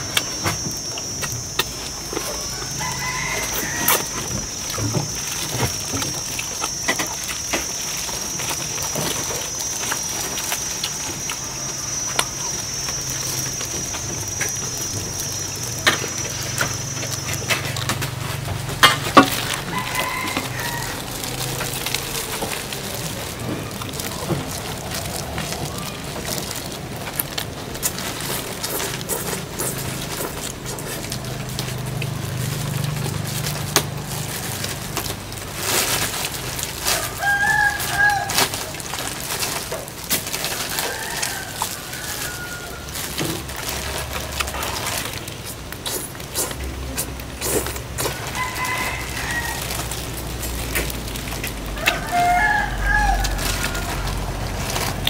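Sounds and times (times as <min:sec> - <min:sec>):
high-pitched whine: 0:00.0 - 0:35.1
chicken calling: 0:01.9 - 0:32.8, 0:35.9 - 0:44.8, 0:47.8 - 0:50.7, 0:51.4 - 0:55.0.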